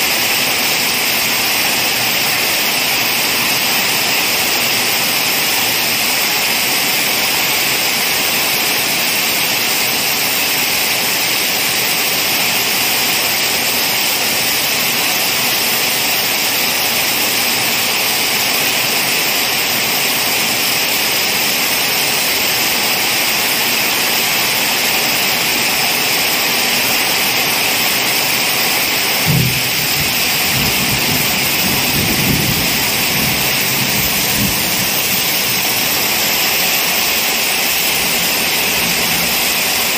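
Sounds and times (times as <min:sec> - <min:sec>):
heavy rain on plants and plastic: 0:00.0 - 0:39.9
rumble of thunder: 0:29.2 - 0:35.3.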